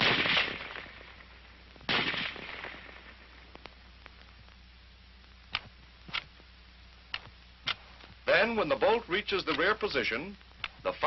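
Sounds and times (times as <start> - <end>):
rifle shot echo: 0.0 - 3.5
steady low hum: 0.0 - 11.0.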